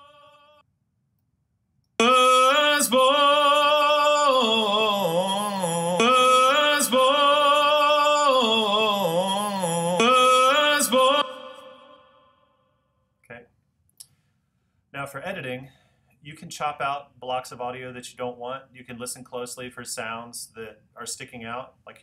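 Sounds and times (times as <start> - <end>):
man singing with reverb: 0.0 - 0.6, 2.0 - 12.5.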